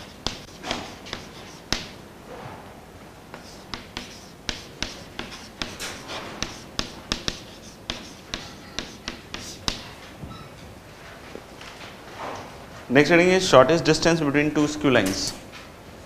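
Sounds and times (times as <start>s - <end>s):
chalk scratching: 0.0s - 2.0s, 3.3s - 9.9s
chalk tapping on chalkboard: 0.0s - 2.0s, 3.3s - 9.9s.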